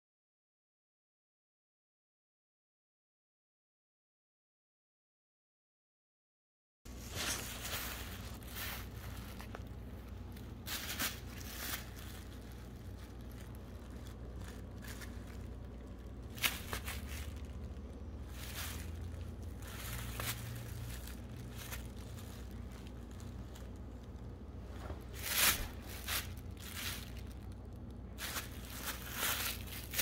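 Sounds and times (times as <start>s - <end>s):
low hum: 6.9s - 30.0s
rustling handling noises: 6.9s - 30.0s.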